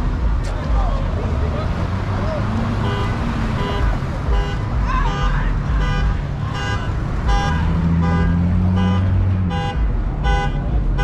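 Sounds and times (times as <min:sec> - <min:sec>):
car engine humming: 0:00.0 - 0:11.0
car horn honking: 0:02.6 - 0:11.0.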